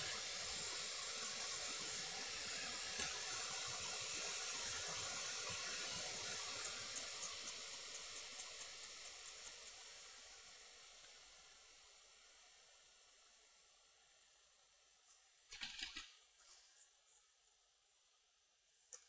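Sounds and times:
hot air blower hissing: 0.0 - 13.5.

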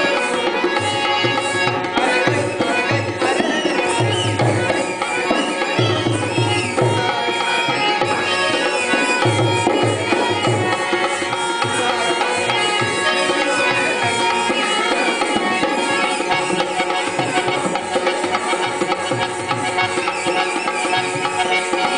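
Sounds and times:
man singing: 0.0 - 18.2.

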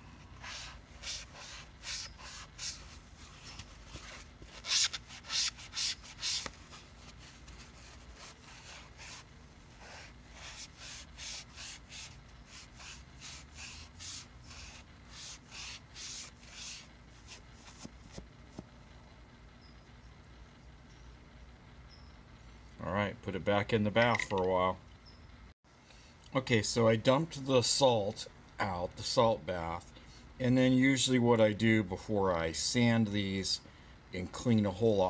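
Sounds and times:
foam scrubbing pipe stem: 0.0 - 16.9.

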